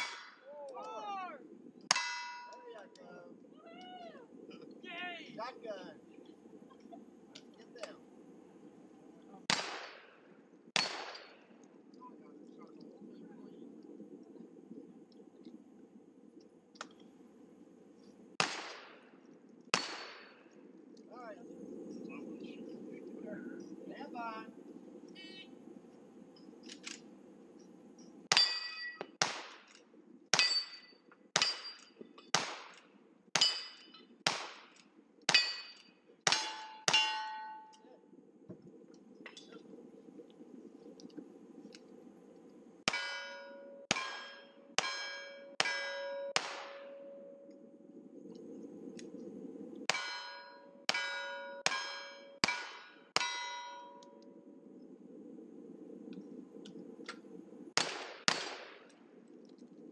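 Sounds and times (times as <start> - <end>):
bullets ringing on steel targets: 1.9 - 2.6, 10.8 - 11.4, 28.3 - 29.1, 30.3 - 32.0, 33.4 - 34.0, 35.3 - 37.8, 42.9 - 47.3, 49.9 - 54.0
rifle shots: 9.5 - 11.5, 18.4 - 20.4, 28.3 - 30.8, 31.4 - 37.3, 45.6 - 47.1, 57.8 - 58.9.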